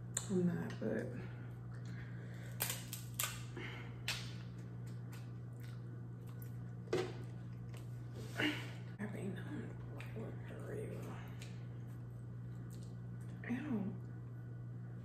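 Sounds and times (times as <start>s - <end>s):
steady low hum: 0.0s - 15.0s
shears cracking crab shell: 2.5s - 5.4s.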